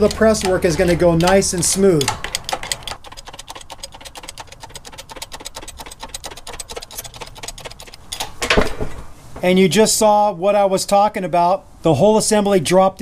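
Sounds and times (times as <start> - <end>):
hydraulic jack pumping clicks: 0.0 - 8.3.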